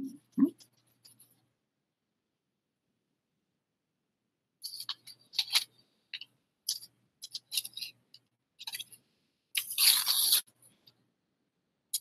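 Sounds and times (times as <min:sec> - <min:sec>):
sandpaper scratching: 0:09.7 - 0:10.5.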